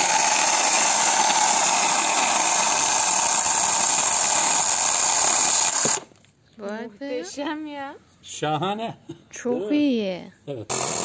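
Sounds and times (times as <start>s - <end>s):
electric chainsaw cutting log: 0.0s - 6.1s, 10.7s - 11.0s.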